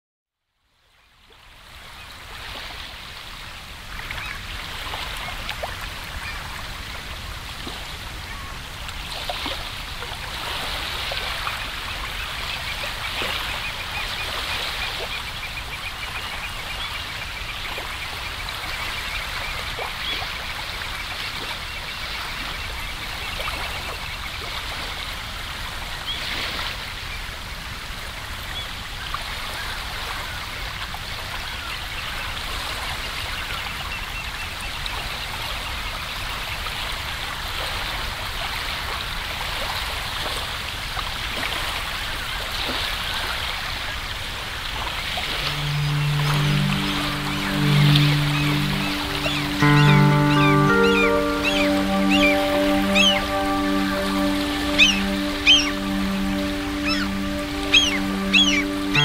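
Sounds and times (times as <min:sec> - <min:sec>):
water trickling and babbling: 0:44.9 - 0:59.0.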